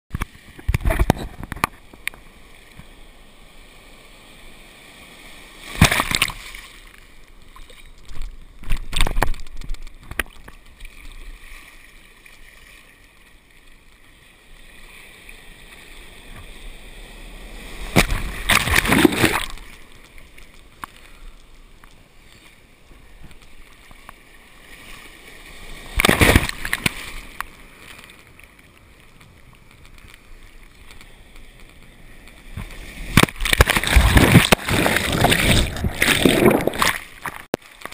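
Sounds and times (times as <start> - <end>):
waves splashing over camera: 0.1 - 37.9
sea water sloshing: 17.4 - 21.2, 32.5 - 37.9.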